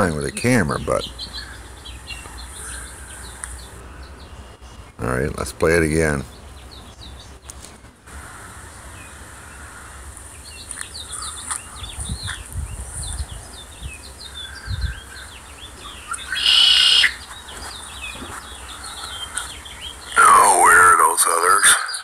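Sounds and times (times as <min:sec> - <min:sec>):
harsh bird call: 0:00.0 - 0:06.8, 0:08.1 - 0:22.0
low rumbles: 0:00.0 - 0:16.4
small birds chirping: 0:00.0 - 0:22.0.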